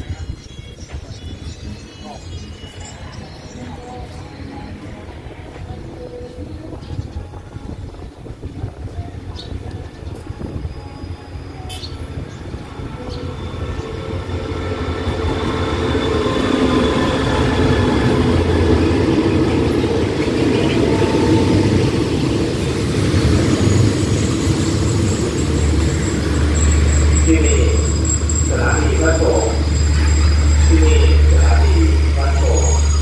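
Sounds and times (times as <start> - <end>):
diesel locomotive engine rumble: 0.0 - 33.0
train wheels on rails: 13.2 - 33.0.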